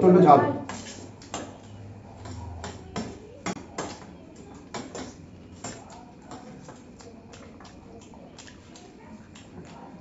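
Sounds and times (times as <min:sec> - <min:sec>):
spoons scraping steel plates: 0:00.7 - 0:01.2.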